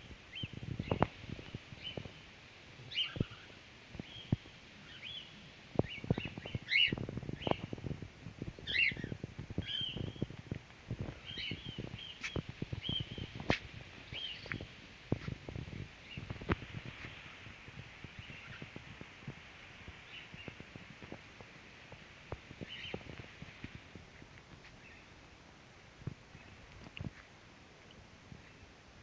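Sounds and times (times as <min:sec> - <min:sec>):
cockatiels chirping: 0:08.7 - 0:10.2.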